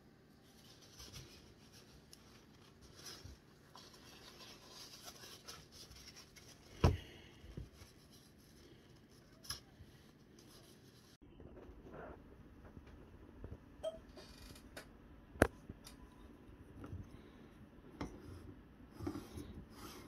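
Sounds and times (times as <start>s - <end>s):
paper rustling: 0.4s - 11.2s.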